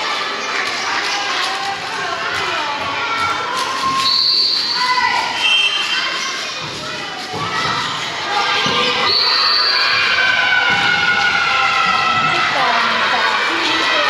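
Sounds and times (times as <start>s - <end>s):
women shouting and cheering: 7.4s - 14.0s.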